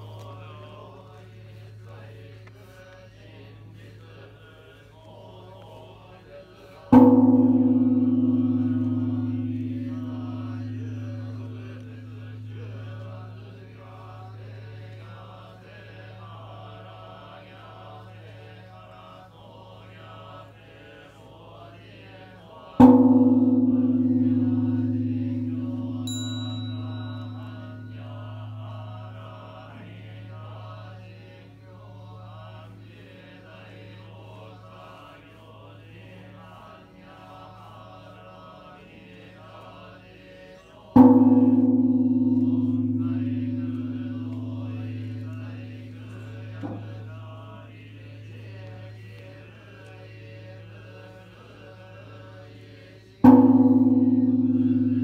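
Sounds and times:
monks chanting: 0.0s - 55.0s
bronze temple bell ringing: 6.9s - 17.0s, 22.8s - 32.8s, 41.0s - 50.8s, 53.2s - 55.0s.

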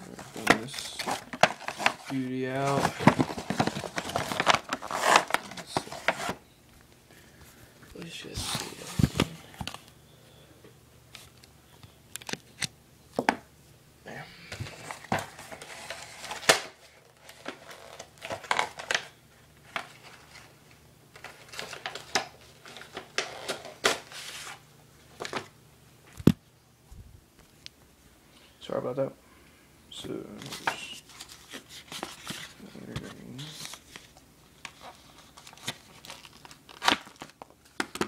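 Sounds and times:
packaging crinkling and rustling: 0.0s - 6.4s, 7.9s - 10.0s, 14.6s - 25.5s, 30.3s - 38.0s.

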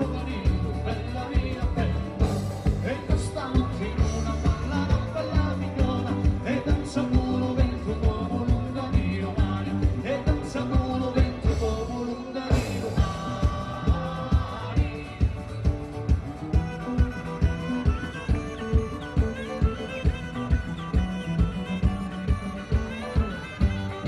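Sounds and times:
person singing: 0.0s - 16.2s
folk band playing dance tune: 0.0s - 24.0s.

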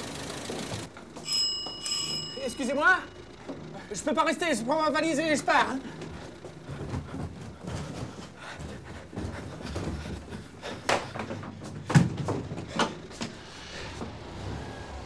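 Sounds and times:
footsteps down a staircase: 0.3s - 2.5s, 5.2s - 14.3s.

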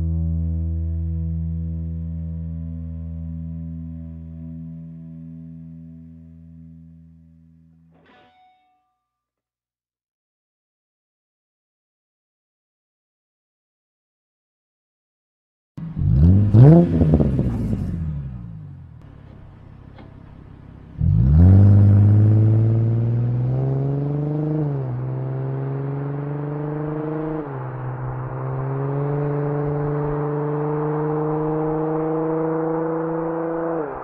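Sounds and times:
car exhaust accelerating: 0.0s - 7.7s, 15.8s - 34.0s.

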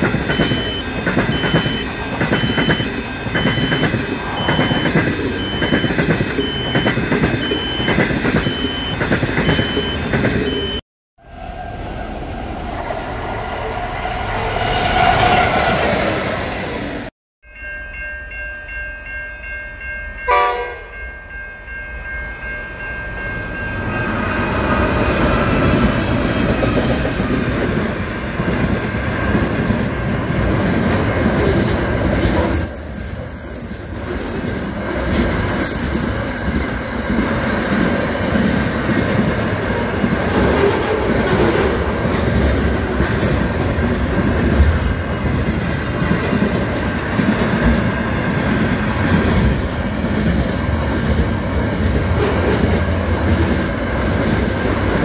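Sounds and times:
train horn blast: 20.3s - 20.9s.

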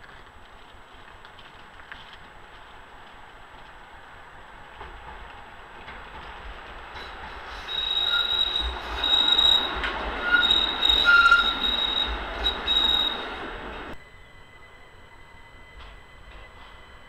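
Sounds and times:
tram rumble: 0.0s - 17.0s
tram wheels squealing on rails: 3.4s - 17.0s.

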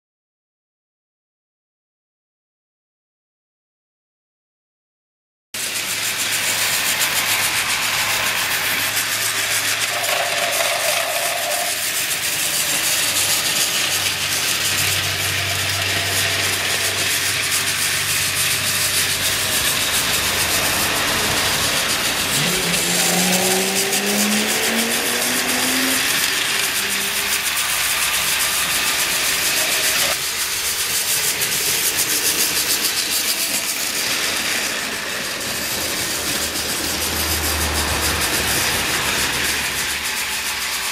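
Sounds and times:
toy train motors whirring: 5.6s - 40.9s
wheel rumble: 5.6s - 40.9s
whine climbing in pitch: 6.6s - 30.2s.

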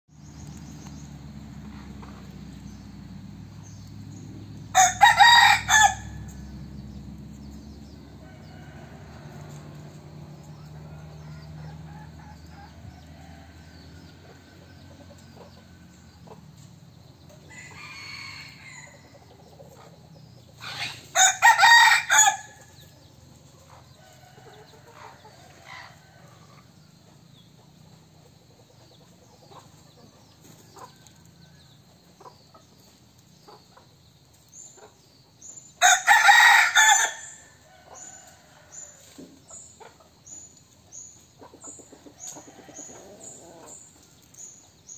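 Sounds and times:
rooster crowing: 4.7s - 6.5s, 7.9s - 10.0s, 10.6s - 16.0s, 17.5s - 19.2s, 20.6s - 22.8s, 35.8s - 39.2s.

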